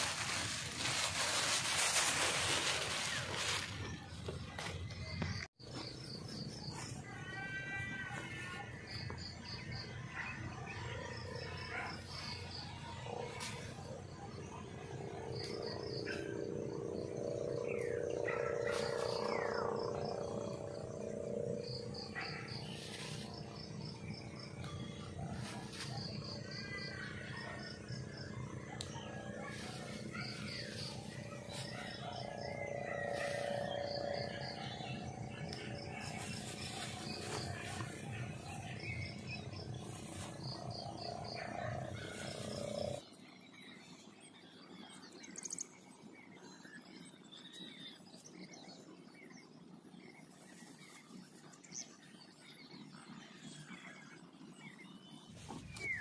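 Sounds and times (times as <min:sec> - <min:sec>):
insects chirping: 0:07.6 - 0:43.0
low-pitched call or hum: 0:13.1 - 0:43.0.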